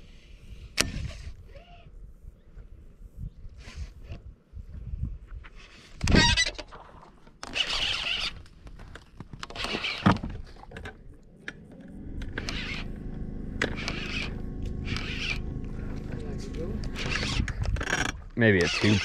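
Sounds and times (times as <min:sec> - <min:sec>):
fishing reel whirring: 0:07.4 - 0:08.4, 0:09.5 - 0:10.1, 0:11.9 - 0:19.0
steady low hum: 0:11.0 - 0:18.4.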